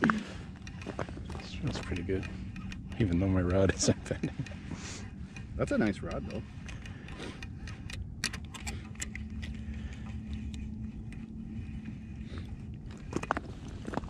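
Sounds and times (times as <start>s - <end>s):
fishing reel whirring: 0.0s - 14.0s.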